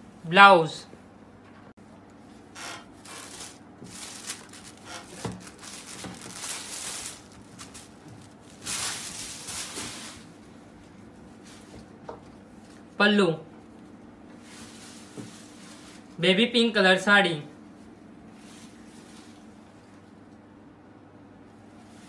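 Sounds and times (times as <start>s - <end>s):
fabric rustling: 3.0s - 10.4s, 14.4s - 16.2s.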